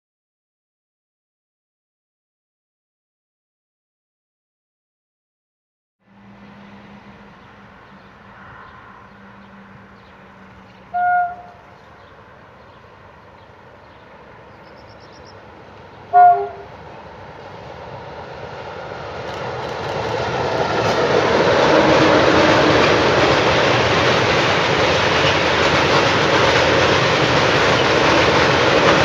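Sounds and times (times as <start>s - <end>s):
locomotive engine and wheel noise: 6.1s - 29.0s
diesel locomotive horn blasts: 10.9s - 11.6s, 16.1s - 16.8s, 21.3s - 23.1s.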